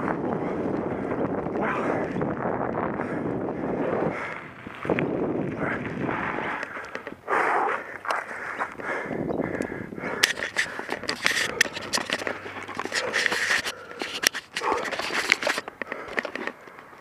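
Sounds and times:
tyres crunching on dirt trail: 0.1s - 17.0s
bike rattles and knocks: 0.9s - 7.2s, 10.0s - 17.0s.

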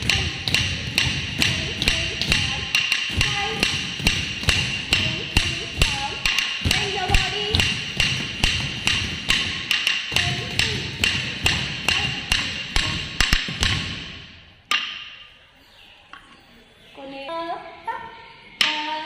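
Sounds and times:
stick beating wooden block: 0.0s - 15.2s.

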